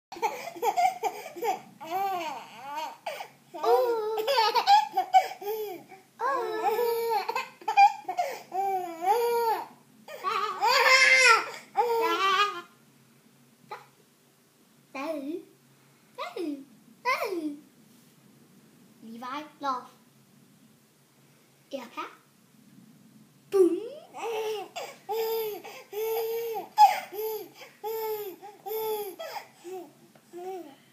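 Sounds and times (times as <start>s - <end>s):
baby laughing: 0.1s - 12.7s, 24.1s - 29.8s.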